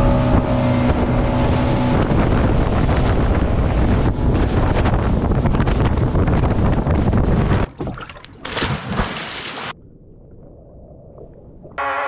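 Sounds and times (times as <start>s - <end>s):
wind buffeting microphone: 0.0s - 8.0s
motorboat engine hum: 0.0s - 8.6s, 9.4s - 12.0s.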